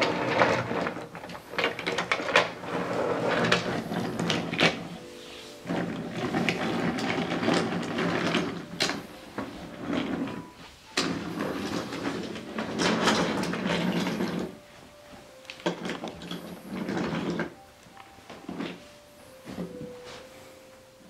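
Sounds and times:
toy train rolling on wooden track: 0.0 - 5.0, 5.6 - 14.6, 15.6 - 17.6, 18.3 - 18.8.

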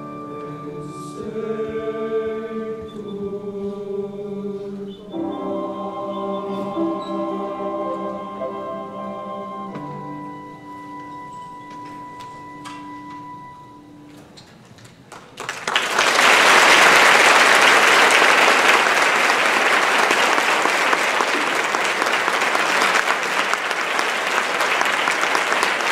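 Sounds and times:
held music chord: 0.0 - 14.2
audience applause: 15.1 - 25.9.

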